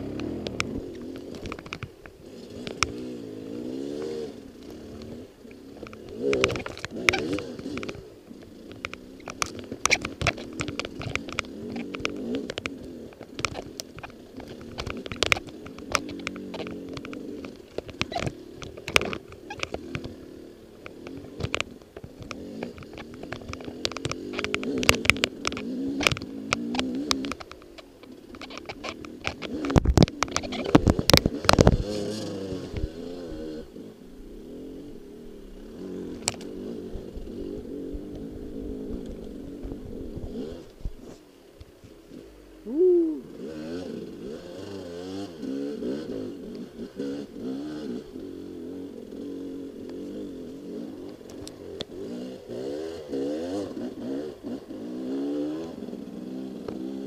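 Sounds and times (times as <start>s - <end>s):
bike clicks and knocks: 0.0s - 3.2s, 3.8s - 33.6s, 35.7s - 42.0s
dirt bike engine: 0.0s - 57.0s.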